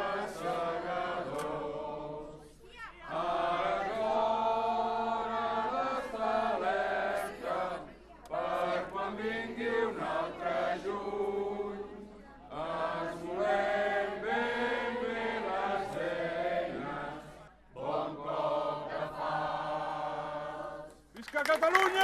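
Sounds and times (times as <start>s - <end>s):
crowd chanting in unison: 0.0s - 21.1s.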